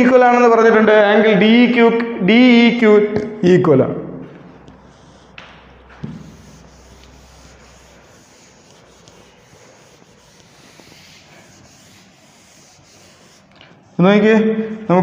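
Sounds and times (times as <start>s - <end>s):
chalk rubbing off chalkboard: 4.6s - 14.5s.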